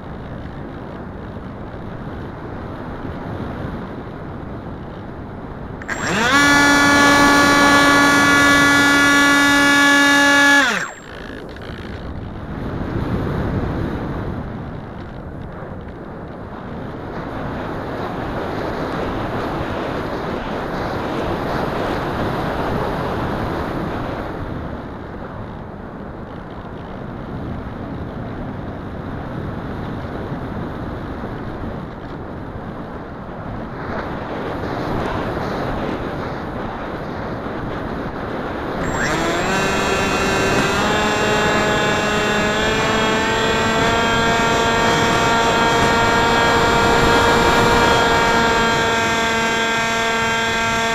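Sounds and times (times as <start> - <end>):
wind rushing over microphone: 10.6 - 50.9.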